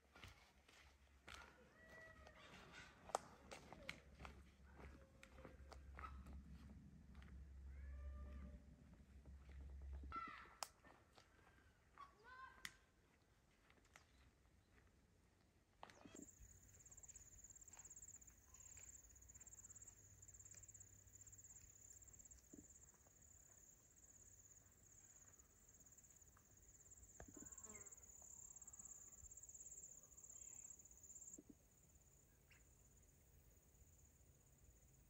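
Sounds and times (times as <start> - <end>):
faint clicks and chirps: 15.8 - 31.7
high-pitched insect trill: 16.2 - 35.0.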